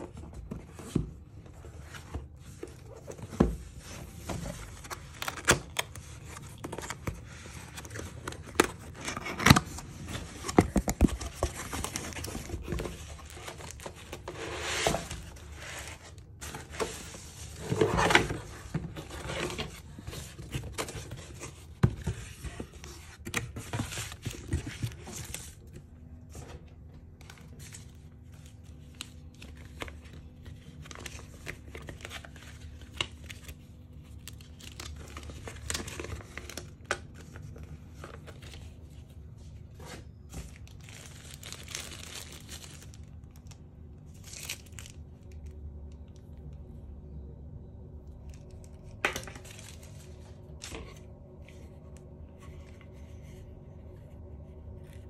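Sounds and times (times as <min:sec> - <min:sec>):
plastic packaging crinkling: 0:04.6 - 0:21.7, 0:39.8 - 0:45.8, 0:48.1 - 0:51.4.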